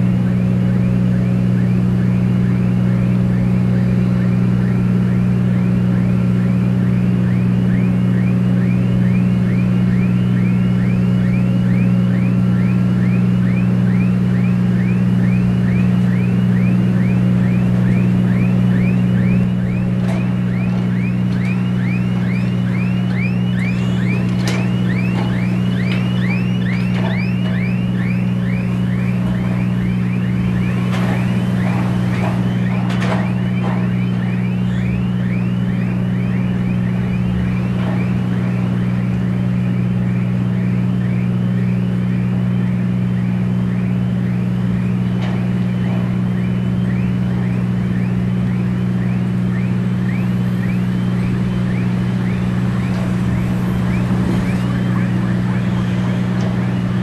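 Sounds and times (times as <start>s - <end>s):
crane warning alarm chirping: 0.0s - 57.0s
low drone of ship machinery: 0.0s - 57.0s
metallic clanks: 17.8s - 39.0s, 51.0s - 57.0s.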